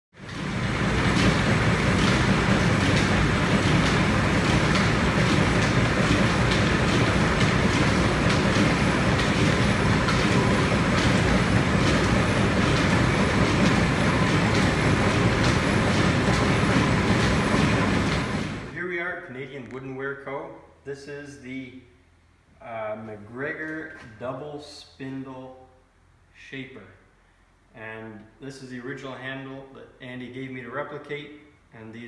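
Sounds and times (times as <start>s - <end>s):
line shaft machinery rumbling: 0.2s - 18.8s.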